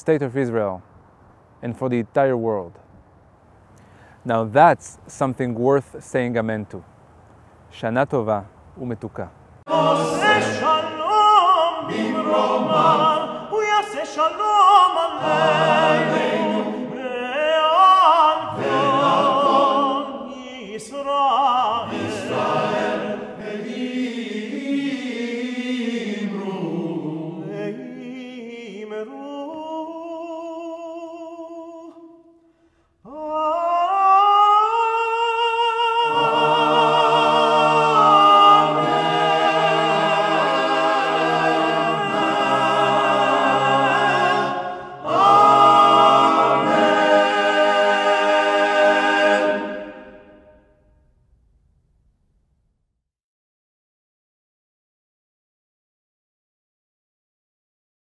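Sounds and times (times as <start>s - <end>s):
men's choir singing: 9.7s - 30.0s, 33.1s - 50.6s
cantor singing with vibrato: 9.7s - 50.7s.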